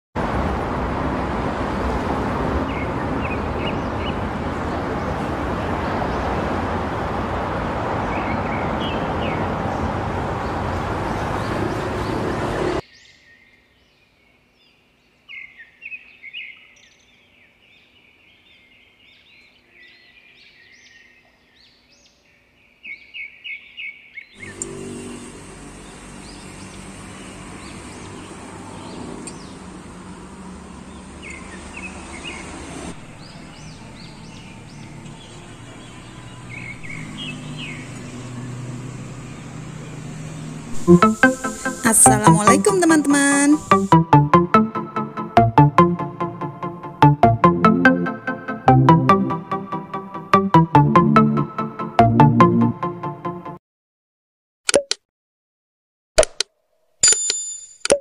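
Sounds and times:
birds chirping: 30.7 - 43.9.

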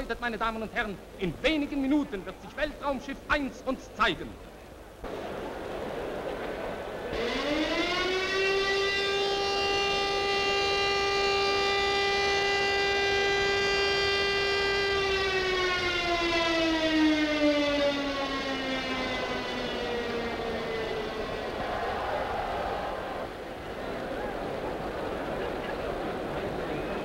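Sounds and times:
motor-driven siren wailing: 7.2 - 23.3.

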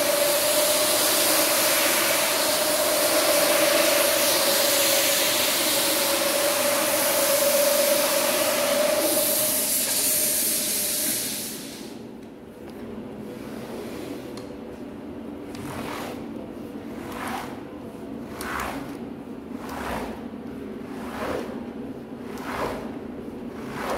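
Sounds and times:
carpet scrubbing machine whine: 0.0 - 10.8
loud hiss: 0.0 - 12.0.

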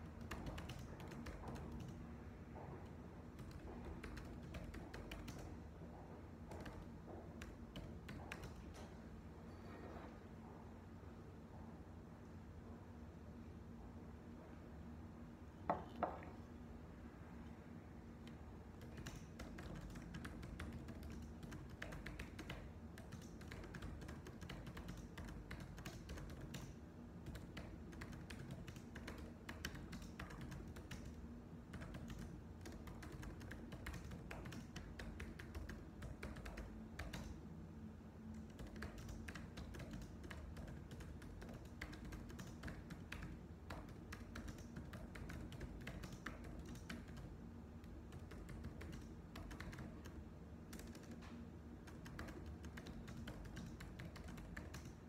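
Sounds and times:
keyboard typing: 0.0 - 2.2, 2.8 - 5.8, 6.4 - 9.0, 18.2 - 37.5, 38.2 - 55.0.

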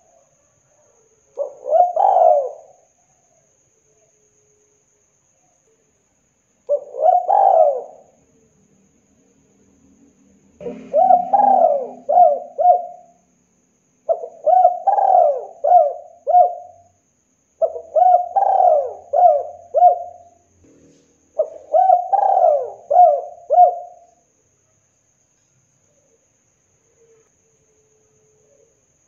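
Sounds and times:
dove cooing: 1.4 - 2.9, 6.7 - 8.2, 10.6 - 13.2, 14.1 - 16.9, 17.6 - 20.4, 21.4 - 24.2.

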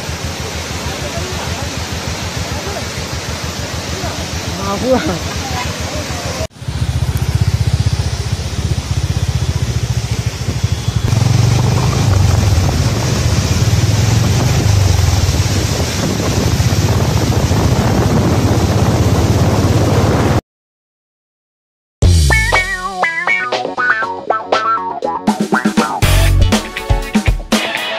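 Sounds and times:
waterfall roaring: 0.0 - 20.2.

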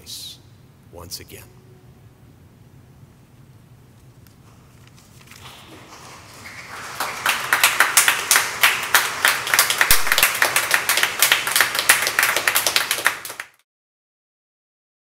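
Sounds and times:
congregation applauding: 5.4 - 13.6.

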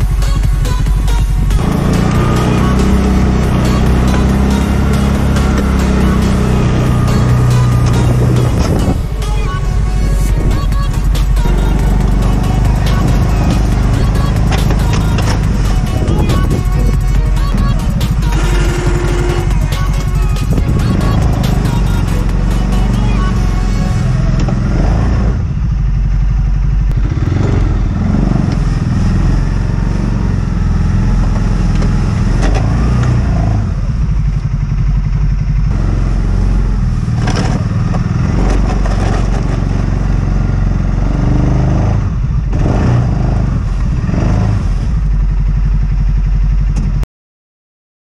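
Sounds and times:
atv engine running under load: 0.0 - 47.0
plow blade knocks and clatter: 13.4 - 15.7, 37.2 - 39.7.

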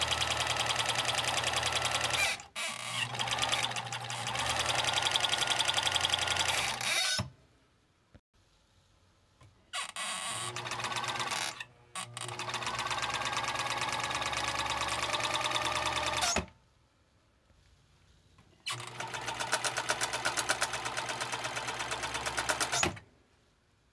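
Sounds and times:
sewing machine running: 0.0 - 6.9, 10.3 - 16.5, 18.7 - 23.0.

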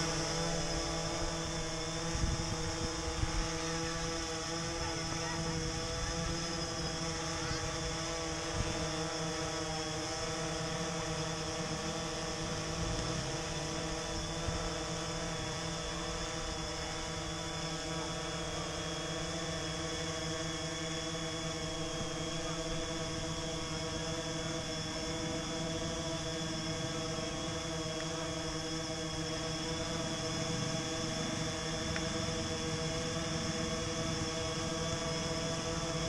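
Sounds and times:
drone whirring hum: 0.0 - 36.0
wind on microphone: 0.4 - 3.6.

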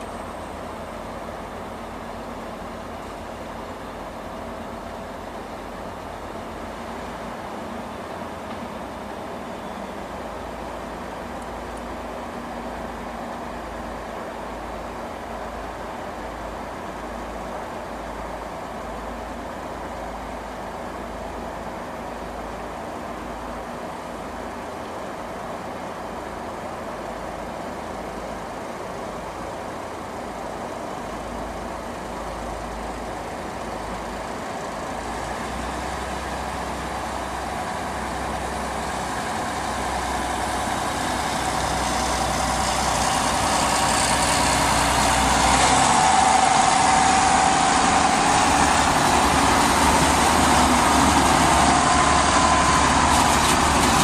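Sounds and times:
diesel train engine: 0.0 - 54.0
steady whine: 35.9 - 54.0.

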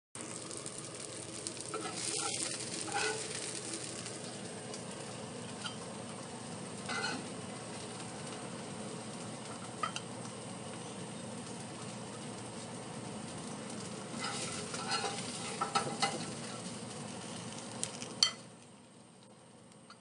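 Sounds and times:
fish sizzling in hot oil: 0.2 - 18.6
metal spatula scraping pan: 1.7 - 3.4, 6.9 - 7.2, 14.2 - 16.4.

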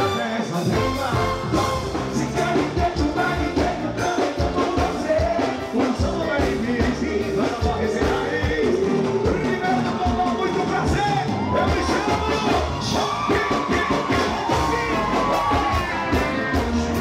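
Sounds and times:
live band music with singer: 0.0 - 17.0.

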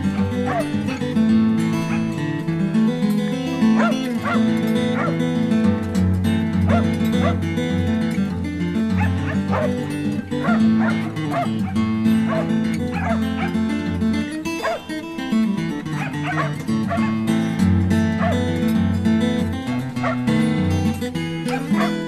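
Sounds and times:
background music: 0.0 - 22.0
dog barking: 0.3 - 1.2, 1.8 - 2.2, 3.7 - 5.3, 6.7 - 7.4, 8.9 - 13.9, 14.5 - 15.0, 15.8 - 17.5, 18.1 - 18.6, 19.6 - 20.4, 21.4 - 22.0.

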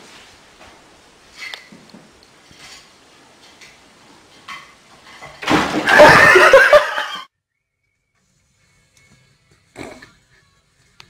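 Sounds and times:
person laughing loudly: 5.8 - 7.3.

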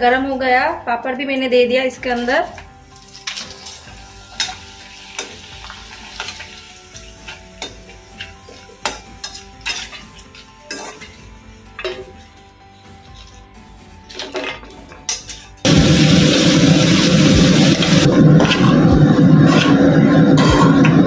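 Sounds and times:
papad sizzling in hot oil: 2.6 - 14.2, 15.6 - 21.0
spoon clicking and scraping pan: 6.1 - 11.2.

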